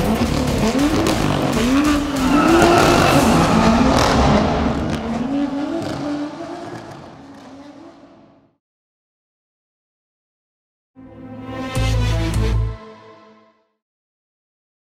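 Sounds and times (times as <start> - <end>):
car engine revving: 0.0 - 8.5
tyre squeal: 1.6 - 6.3.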